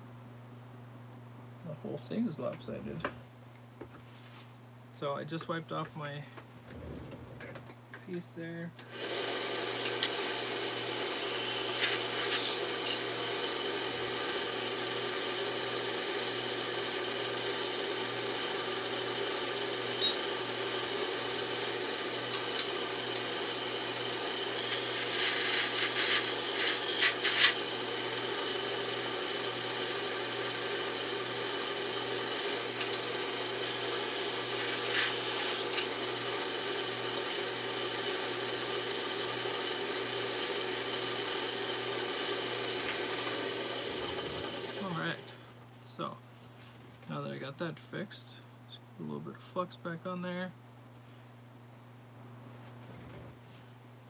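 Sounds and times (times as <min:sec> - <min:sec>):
machine hum: 0:06.2 - 0:45.5
rasping hiss: 0:24.6 - 0:27.6.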